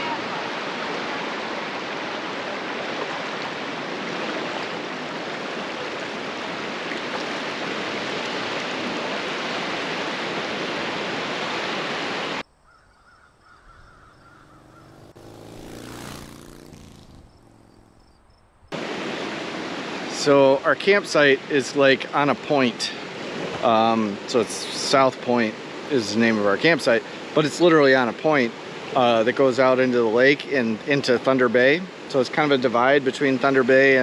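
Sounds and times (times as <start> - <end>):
surf rushing: 0.0 - 12.4, 14.6 - 17.8, 18.8 - 29.1
faint bird call: 12.6 - 15.1
motor passing by: 13.9 - 18.8.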